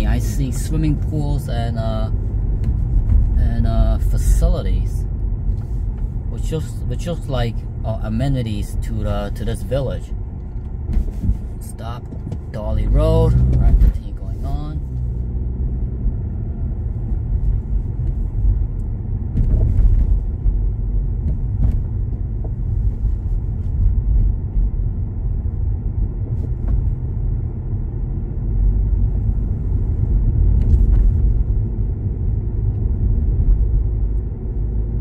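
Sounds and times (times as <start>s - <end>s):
car driving slowly: 0.0s - 35.0s.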